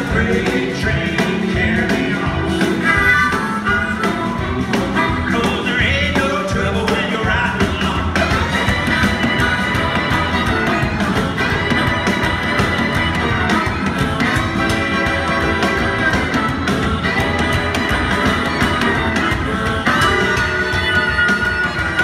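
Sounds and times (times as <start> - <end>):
electric guitar: 0.0 - 22.0
harmonica: 0.0 - 22.0
steady drum beat: 0.0 - 22.0
upright bass: 0.0 - 22.0
fiddle: 8.2 - 22.0.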